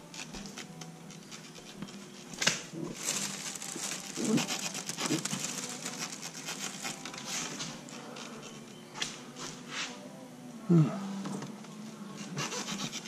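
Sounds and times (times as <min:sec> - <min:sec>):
packaging rustling: 0:02.9 - 0:08.5.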